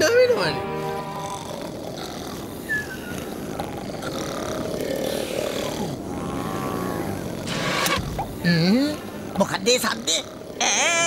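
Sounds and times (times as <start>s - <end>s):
cartoon snoring: 1.1s - 7.7s.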